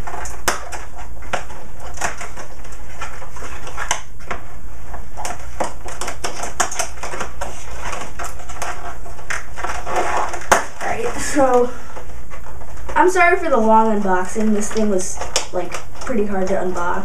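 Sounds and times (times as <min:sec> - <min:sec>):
scissors snipping cardboard: 0:00.0 - 0:04.4, 0:05.2 - 0:10.9, 0:14.4 - 0:16.2
packaging crinkling: 0:00.0 - 0:17.0.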